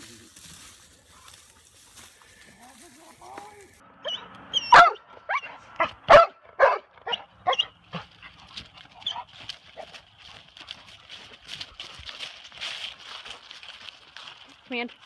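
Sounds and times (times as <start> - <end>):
dog barking: 4.0 - 8.0.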